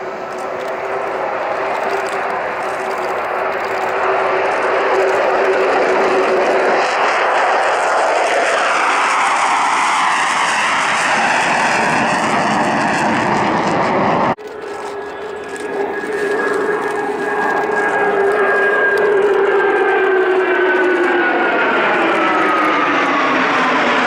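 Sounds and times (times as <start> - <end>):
fighter jet engines roaring: 0.0 - 24.0.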